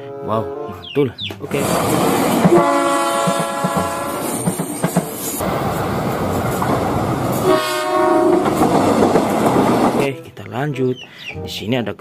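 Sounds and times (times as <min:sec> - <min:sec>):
train horn blast: 0:00.0 - 0:00.8, 0:01.6 - 0:04.6, 0:07.4 - 0:08.7
train wheels clacking on rails: 0:01.4 - 0:10.0.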